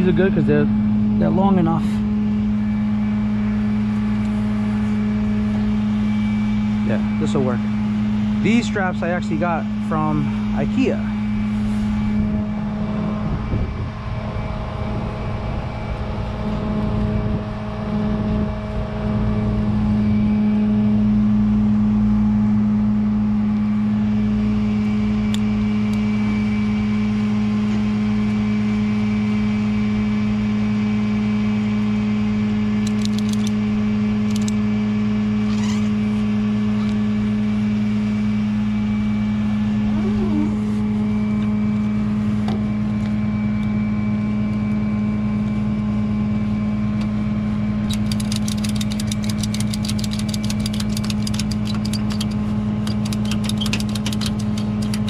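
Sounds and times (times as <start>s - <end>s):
tow truck engine idling: 47.2s - 55.0s.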